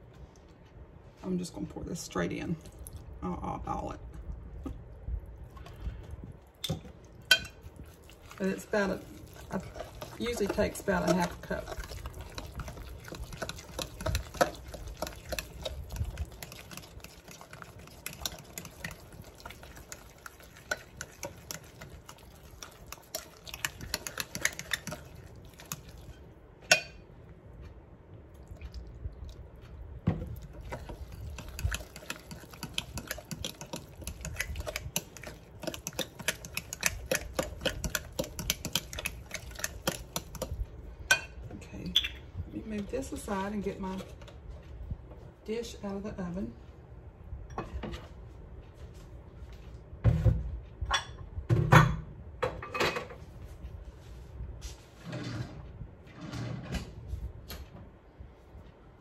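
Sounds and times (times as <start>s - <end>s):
spoon stirring batter in glass bowl: 6.6s - 27.0s, 30.2s - 44.2s.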